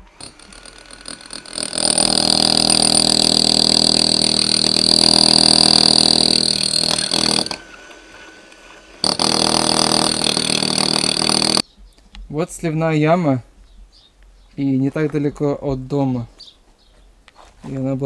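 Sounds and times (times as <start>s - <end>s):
power tool whining: 0.0s - 11.6s.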